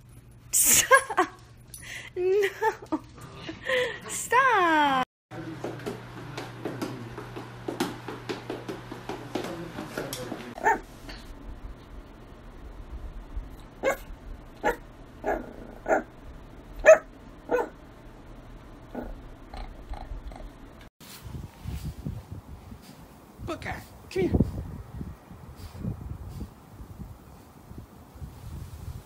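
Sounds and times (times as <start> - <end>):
steady hum: 0.0 - 28.2
puppy barking high: 10.6 - 10.9, 13.8 - 16.1, 16.8 - 17.8.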